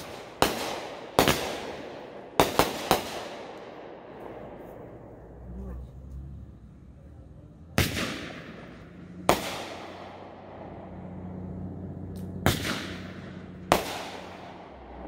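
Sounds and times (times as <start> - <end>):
fireworks bangs with echo: 0.0 - 4.9, 7.7 - 10.9, 12.2 - 15.0.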